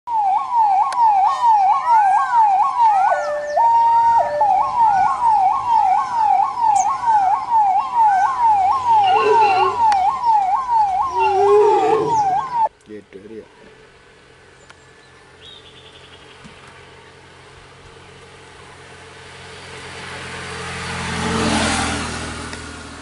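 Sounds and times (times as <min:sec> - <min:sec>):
ambulance siren yelping: 0:00.1 - 0:12.7.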